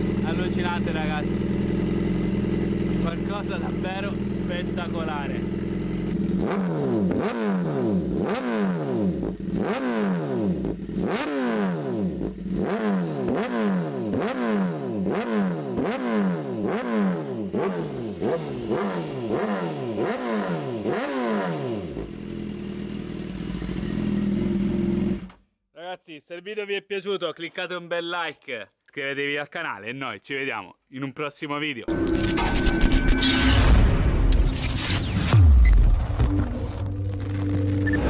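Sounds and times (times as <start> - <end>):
motorcycle engine revving: 0.0 - 25.4.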